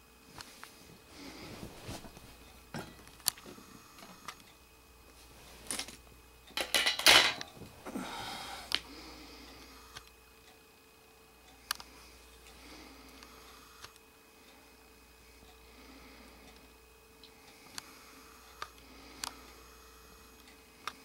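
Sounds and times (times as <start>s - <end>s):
tools clattering on metal: 6.6s - 7.5s.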